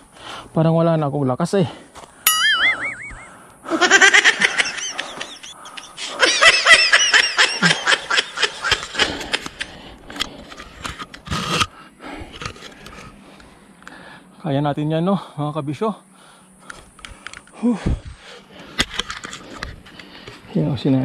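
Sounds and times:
person laughing breathlessly: 2.6s - 10.2s.

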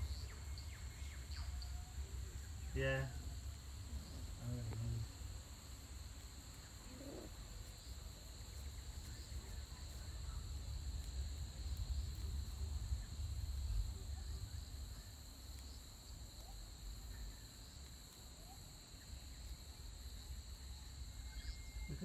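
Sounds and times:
insects buzzing: 0.0s - 22.0s.

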